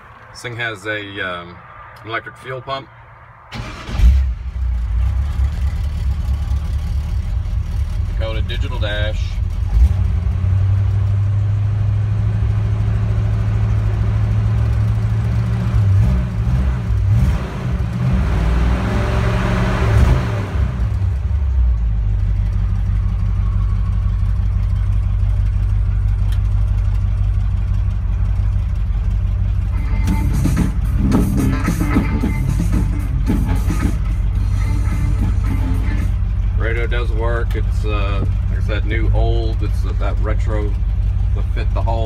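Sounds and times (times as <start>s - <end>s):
pickup truck engine idling and revving: 0.0s - 42.0s
music from truck radio: 29.7s - 36.2s.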